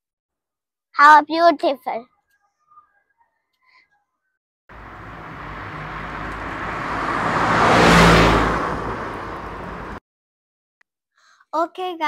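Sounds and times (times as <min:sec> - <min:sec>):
vehicle passing by: 0:04.7 - 0:10.0.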